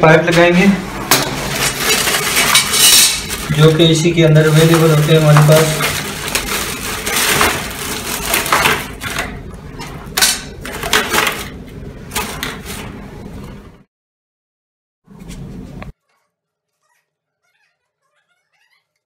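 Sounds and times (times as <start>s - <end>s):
plastic bag crinkling: 1.4s - 9.5s.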